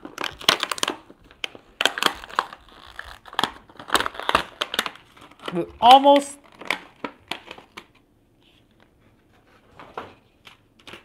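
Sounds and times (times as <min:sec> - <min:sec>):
plastic packaging crackling: 0:00.0 - 0:08.0.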